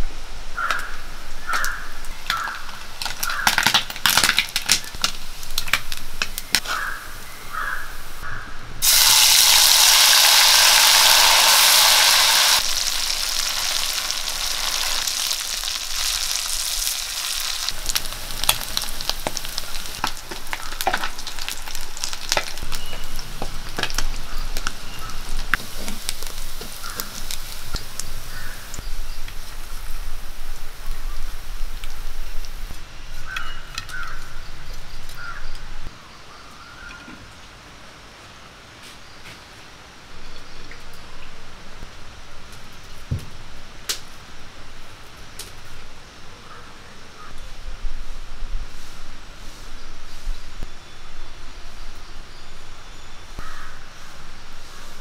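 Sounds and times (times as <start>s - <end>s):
fish deep-frying in oil: 1.4s - 6.4s, 8.8s - 34.4s.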